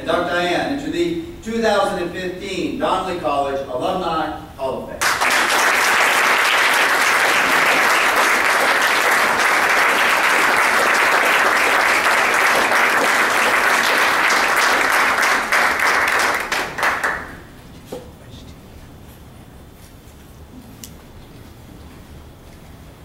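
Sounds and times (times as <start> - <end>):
audience applauding: 5.0 - 17.5.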